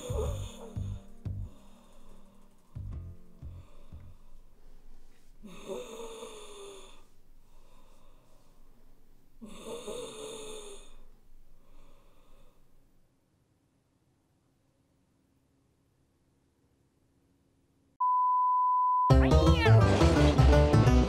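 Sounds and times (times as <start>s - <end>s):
woman snoring: 0.0s - 2.6s, 5.4s - 8.2s, 9.4s - 12.6s.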